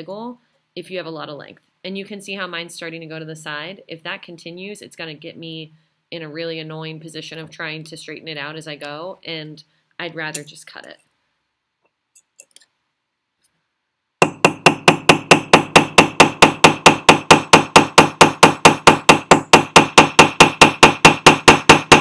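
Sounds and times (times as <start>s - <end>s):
hammer tapping metal punch: 14.2s - 22.0s.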